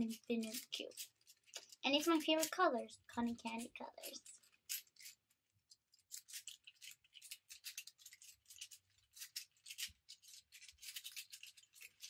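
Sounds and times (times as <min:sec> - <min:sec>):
plastic cube clicking: 0:03.6 - 0:12.0.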